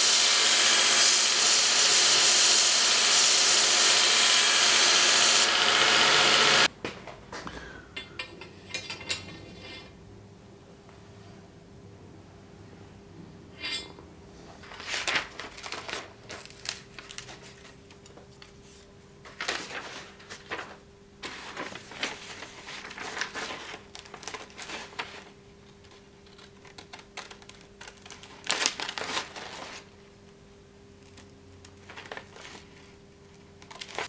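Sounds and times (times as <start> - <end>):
paper rustling: 14.6 - 30.0, 31.0 - 34.0.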